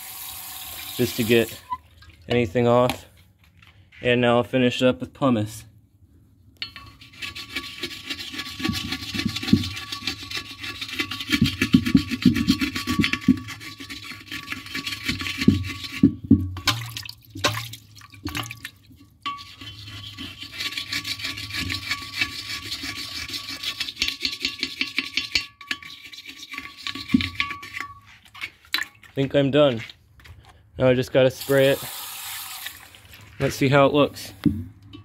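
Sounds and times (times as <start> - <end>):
pumice stone scrubbing porcelain: 6.8 - 16.1, 19.3 - 29.9, 33.2 - 34.2.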